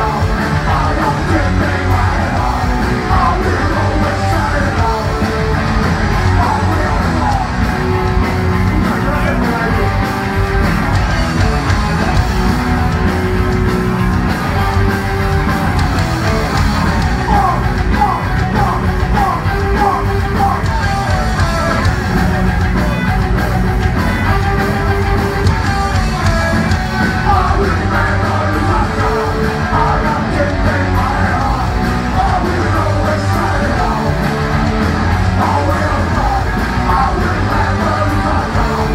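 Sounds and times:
shouted vocals: 0.0 - 10.1, 16.9 - 21.9, 26.4 - 38.9
punk rock band playing: 0.0 - 38.9.

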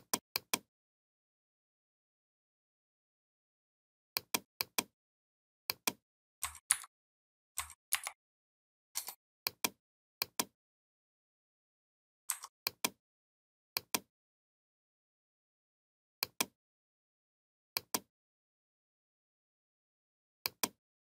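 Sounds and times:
mouse and keyboard clicking: 5.7 - 6.9, 7.6 - 8.2, 9.0 - 10.5, 12.3 - 13.0.

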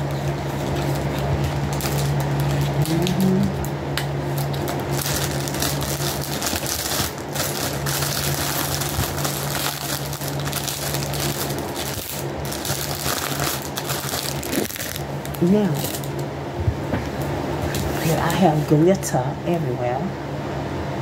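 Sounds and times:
plastic packaging crinkling: 0.0 - 16.3
low steady hum: 0.0 - 21.0.

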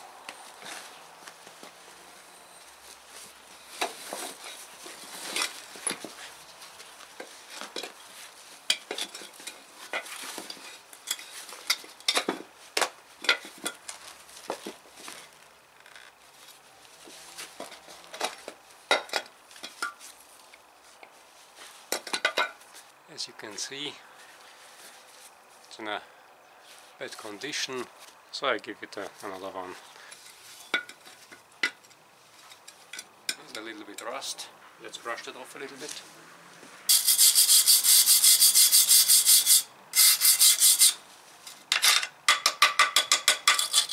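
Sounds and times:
rubber scuffing and rustling: 0.2 - 22.0
metal rim clinking and knocking: 41.7 - 43.9.

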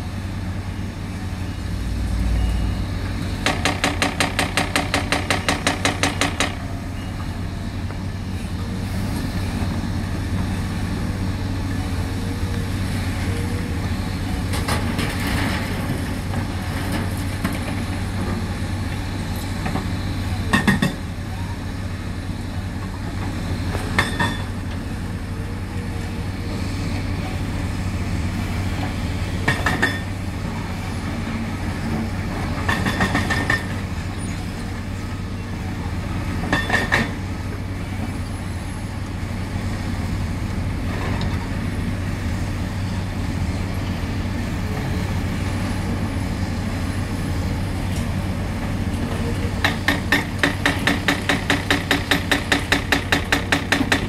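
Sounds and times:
excavator diesel engines running: 0.0 - 54.0
hydraulic hammer pounding concrete: 3.4 - 6.6, 29.4 - 30.1, 32.6 - 33.8, 49.6 - 54.0.

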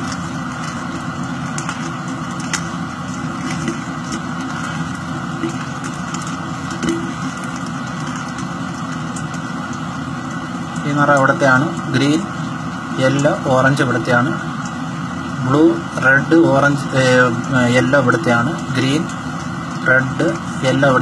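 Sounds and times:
steady hum: 0.0 - 21.0.

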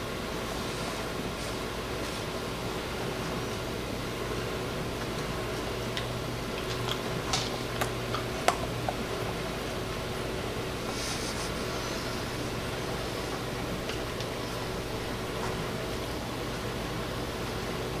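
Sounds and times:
steady background hum: 0.0 - 18.0
dog chewing crunchy treat: 3.3 - 16.7.

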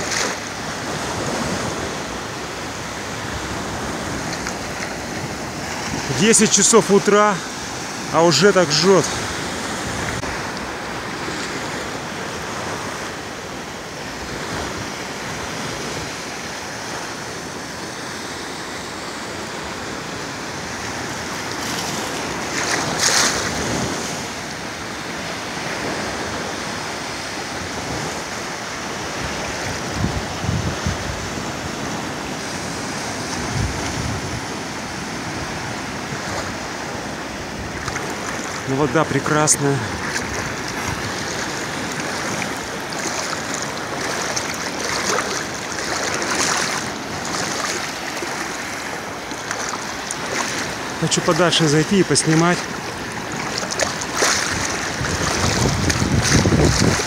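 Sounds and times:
loud wave splash: 0.0 - 19.8, 20.4 - 57.0
waves breaking and hissing: 0.0 - 57.0
wind buffeting microphone: 29.3 - 38.8, 39.7 - 50.9, 52.6 - 57.0.

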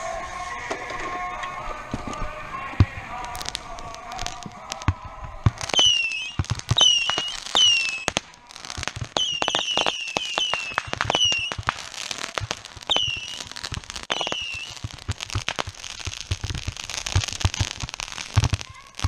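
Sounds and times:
fireworks popping and cracking: 0.0 - 19.0
fireworks whistle dropping in pitch: 3.4 - 8.2, 9.2 - 11.7, 12.9 - 14.9.

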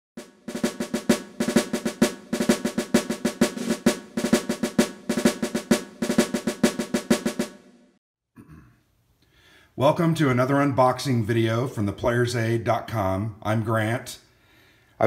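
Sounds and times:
snare drum strikes and rolls: 0.2 - 7.8.

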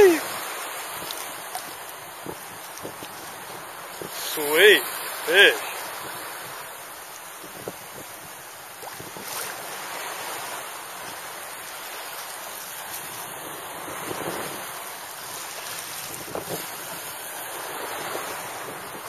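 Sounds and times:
surf washing onto beach: 0.0 - 19.0
wind buffeting microphone: 7.4 - 9.8, 15.9 - 19.0.

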